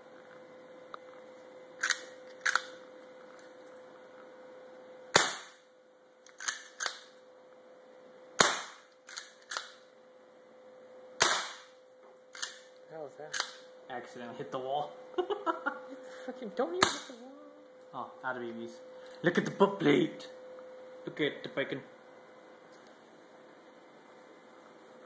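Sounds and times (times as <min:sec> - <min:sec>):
airsoft gun shot crack: 0:05.1 - 0:05.6, 0:08.4 - 0:08.9, 0:11.2 - 0:11.7.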